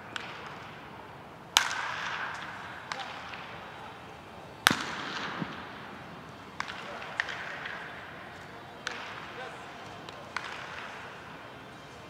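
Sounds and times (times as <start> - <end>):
baseball bat cracking balls: 0.1 - 0.9, 1.5 - 11.3
faint cracks of other hits: 1.5 - 4.0, 4.6 - 11.3.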